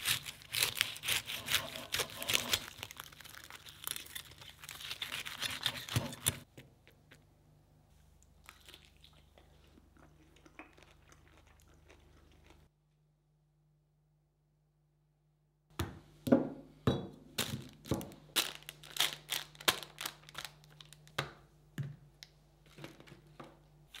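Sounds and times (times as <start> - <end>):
knife sawing through crispy crust: 0.0 - 2.8, 4.0 - 6.4
chewing crunchy crust: 0.0 - 7.1, 8.4 - 12.7.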